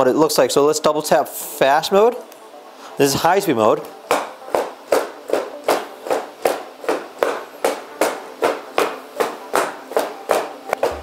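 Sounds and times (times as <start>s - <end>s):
robot feet stomping on floor: 10.3s - 11.0s.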